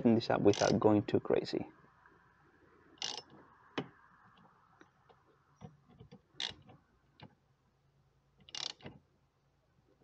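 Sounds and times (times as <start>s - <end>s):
socket ratchet clicking: 0.5s - 0.8s, 3.0s - 3.3s, 6.3s - 6.7s, 8.4s - 9.0s.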